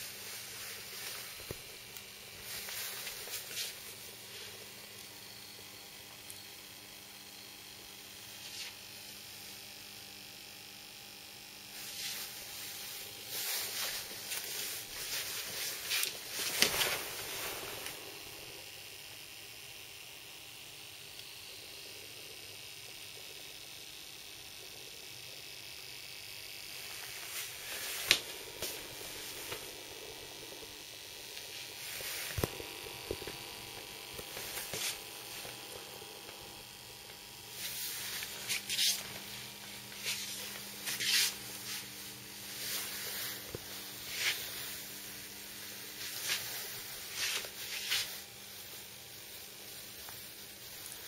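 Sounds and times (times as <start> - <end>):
steady hiss: 0.0 - 10.4, 11.0 - 51.0
faint hum: 0.0 - 26.0, 26.6 - 51.0
soft rustling: 2.4 - 4.6, 11.8 - 18.2.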